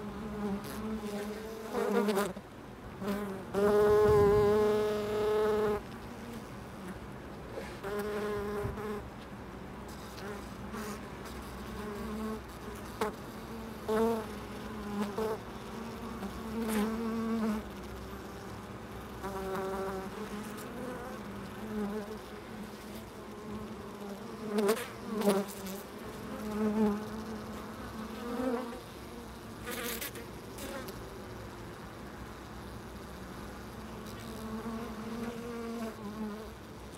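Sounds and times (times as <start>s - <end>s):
bee flying past: 9.9s - 36.9s
honeybees buzzing: 9.9s - 36.9s.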